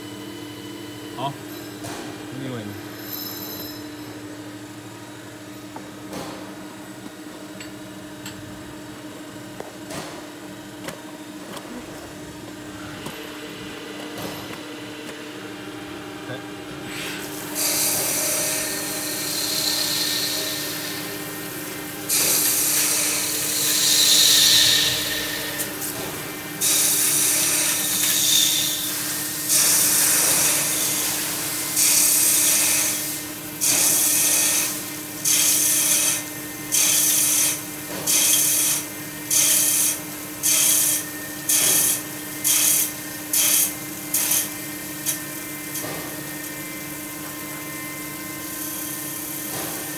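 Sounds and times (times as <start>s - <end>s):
steady machine hum: 0.0s - 49.9s
lathe cutting metal: 17.5s - 25.8s, 26.6s - 46.8s.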